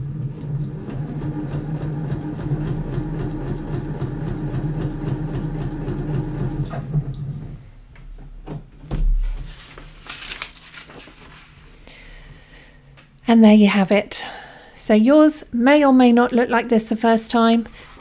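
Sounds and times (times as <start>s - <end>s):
sewing machine stitching: 0.0s - 7.5s
dull thump: 8.5s - 9.5s
paper rustling: 9.2s - 11.6s.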